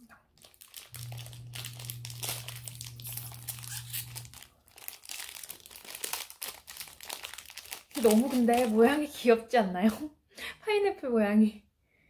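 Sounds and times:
plastic wrapper crinkling: 0.1s - 9.2s.

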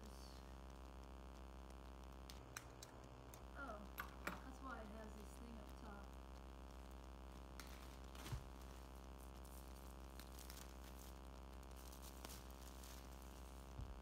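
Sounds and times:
low hum: 0.0s - 14.0s
plastic wrap crinkling: 6.7s - 14.0s.

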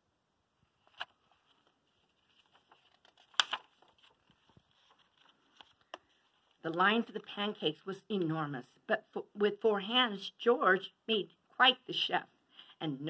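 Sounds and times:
book pages rustling: 0.7s - 7.2s
page flapping: 0.8s - 6.6s.

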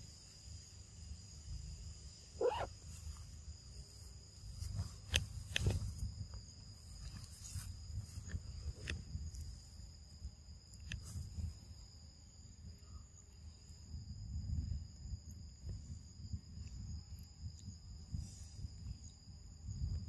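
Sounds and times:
insects droning: 0.0s - 20.0s
leaves and twigs rustling: 2.4s - 9.8s.

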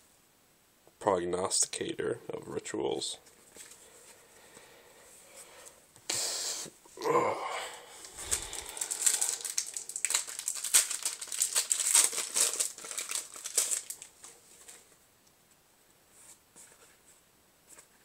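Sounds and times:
foil wrapper crinkling and tearing: 8.0s - 14.3s
cards rustling: 8.0s - 15.0s.

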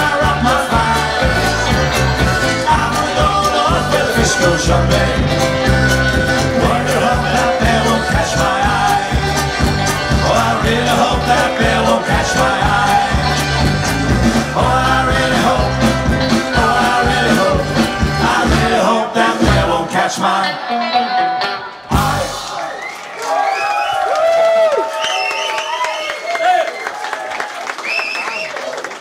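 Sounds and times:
folk-rock band playing live: 0.0s - 22.7s.

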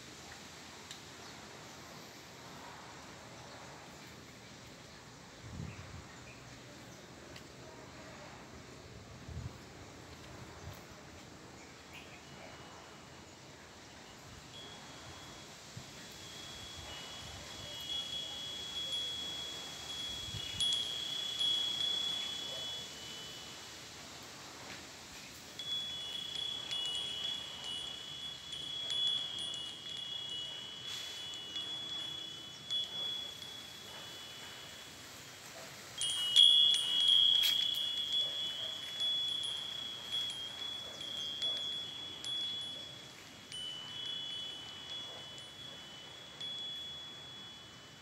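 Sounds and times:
wind chime bells ringing: 11.8s - 48.0s.

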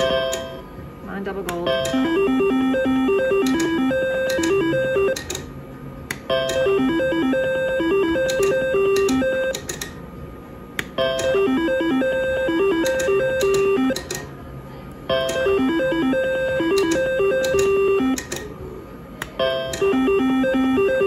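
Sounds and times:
slot machine beeping melody: 0.0s - 0.6s, 1.6s - 5.4s, 6.3s - 10.0s, 11.0s - 14.3s, 15.1s - 18.5s, 19.4s - 21.0s.

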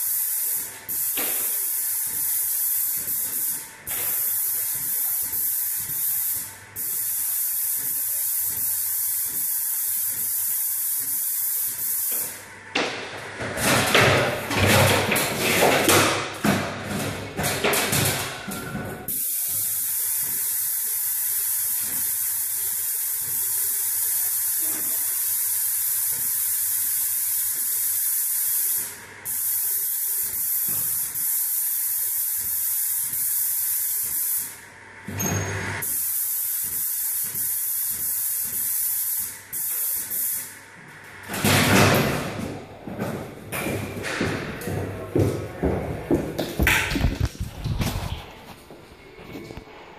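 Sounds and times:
paint sprayer hissing: 0.0s - 13.4s, 19.0s - 41.4s.

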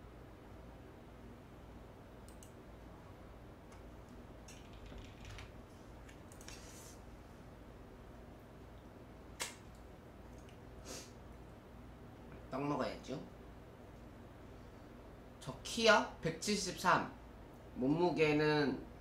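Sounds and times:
soft eating clicks: 2.2s - 2.6s, 3.7s - 6.6s, 8.7s - 10.7s.

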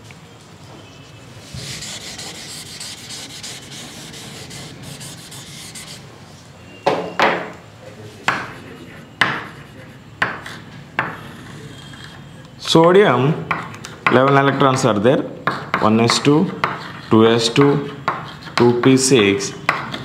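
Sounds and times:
chalk strokes on board: 1.4s - 6.1s, 8.1s - 12.2s, 15.5s - 19.1s
eraser rubbing on chalkboard: 1.4s - 6.1s, 8.3s - 12.2s, 15.5s - 18.8s.

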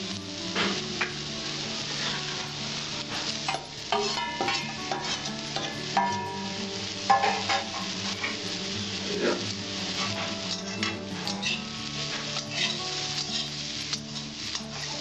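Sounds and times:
vegetables sizzling in pan: 0.0s - 15.0s
metal spatula scraping and clinking: 3.5s - 6.3s, 7.1s - 8.4s, 10.0s - 13.6s.

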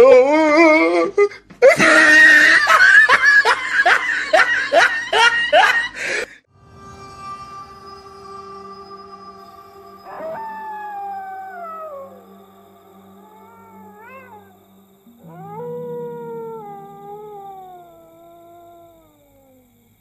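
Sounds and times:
low hum: 6.5s - 20.0s
dog howling: 8.6s - 19.8s.

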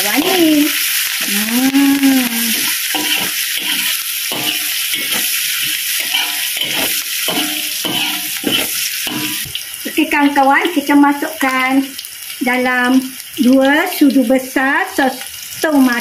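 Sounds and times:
oil sizzling: 0.0s - 16.0s
metal spatula scraping a wok: 2.5s - 9.5s.

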